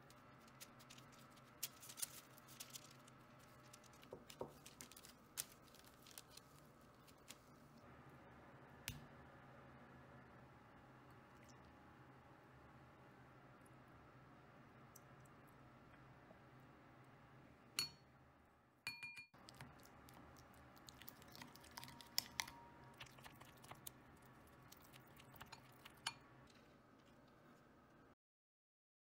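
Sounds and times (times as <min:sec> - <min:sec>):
spoon tap on bowl: 0:18.9 - 0:19.3.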